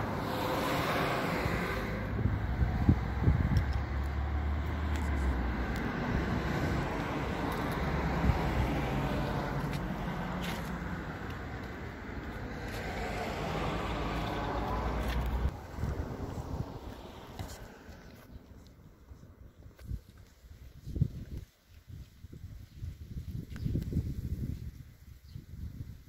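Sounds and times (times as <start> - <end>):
car engine passing: 0.0 - 18.2
steady low rumble: 0.0 - 19.7
wind buffeting microphone: 0.0 - 26.0.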